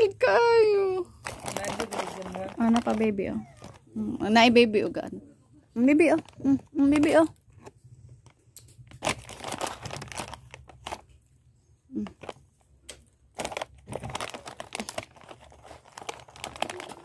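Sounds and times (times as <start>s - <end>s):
plastic packet crinkling: 1.1s - 4.1s, 6.2s - 11.2s, 11.9s - 17.0s.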